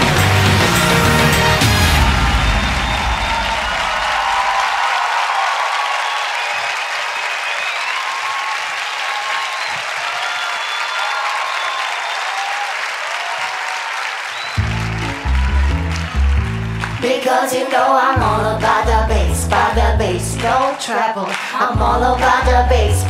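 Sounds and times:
intro music bass: 0.0 - 3.6, 14.6 - 17.0, 18.2 - 20.6, 21.8 - 23.0
audience applauding and cheering: 0.0 - 22.7.

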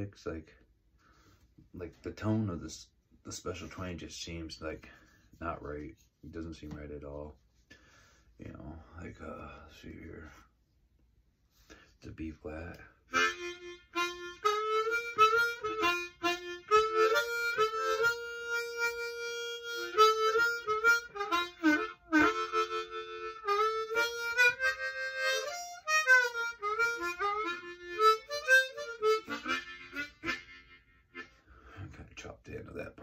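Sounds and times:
harmonica playing: 13.1 - 31.8.

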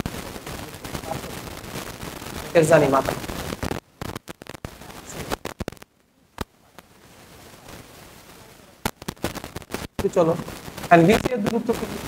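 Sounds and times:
sharp clicks and crackles: 0.0 - 7.0, 7.7 - 12.0.

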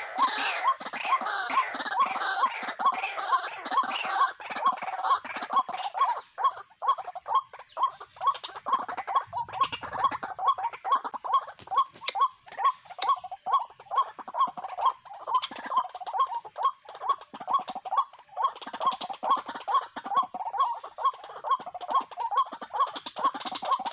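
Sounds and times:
waterhen calls: 0.0 - 23.9.

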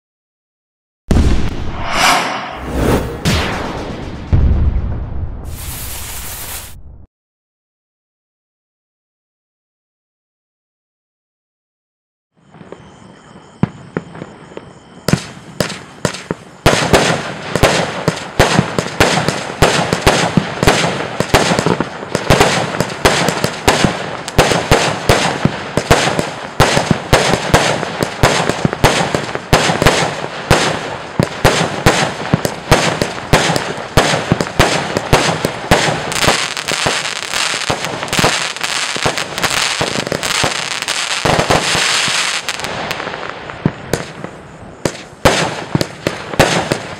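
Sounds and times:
firework launches and bursts: 1.1 - 6.9, 15.2 - 46.8.

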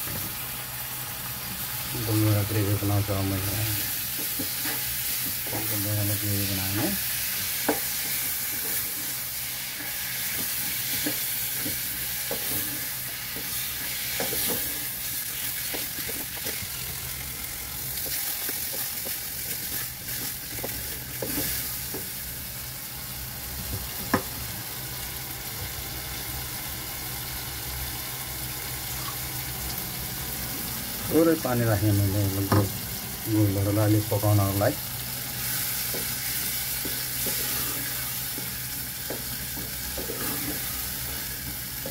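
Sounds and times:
tomatoes sizzling in a pot: 0.0 - 41.9
wooden spatula scraping pot: 35.4 - 41.9.

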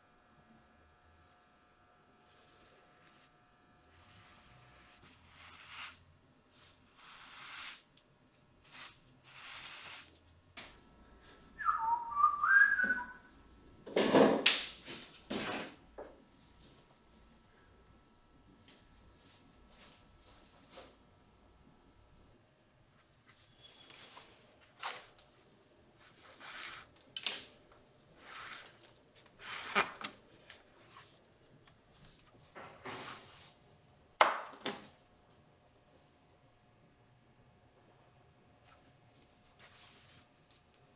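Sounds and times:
person whistling: 11.6 - 13.3.

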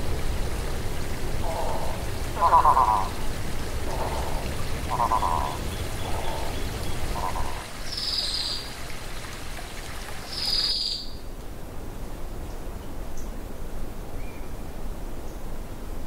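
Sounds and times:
water trickling over rocks: 0.0 - 11.6
high-pitched calls: 1.4 - 3.2, 3.9 - 8.6
short pulsed animal calls: 1.4 - 3.2, 3.8 - 8.3.

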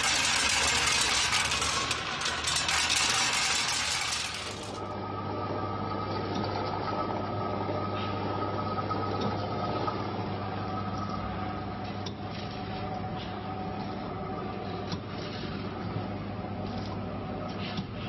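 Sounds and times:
rattle of pieces in disc: 0.0 - 4.8.

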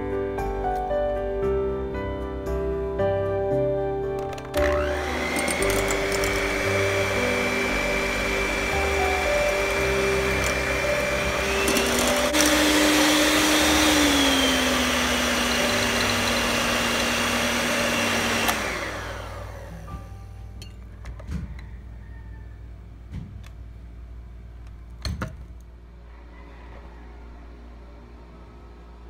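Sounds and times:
electric hand mixer running: 4.5 - 20.1.

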